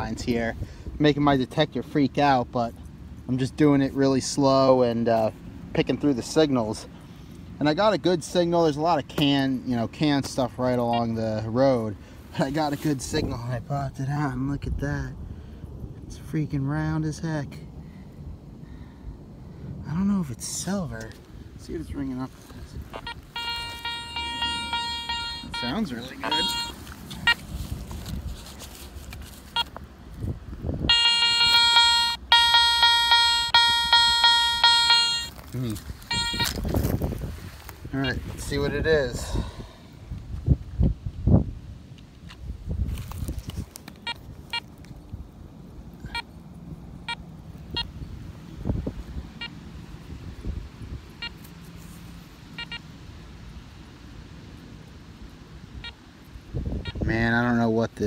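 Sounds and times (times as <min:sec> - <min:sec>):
metal detector beeping: 0:10.8 - 0:11.2, 0:22.9 - 0:27.5, 0:29.5 - 0:29.8, 0:30.9 - 0:36.8, 0:38.0 - 0:38.6, 0:47.0 - 0:48.0, 0:51.2 - 0:51.7, 0:52.6 - 0:52.9, 0:55.8 - 0:56.0.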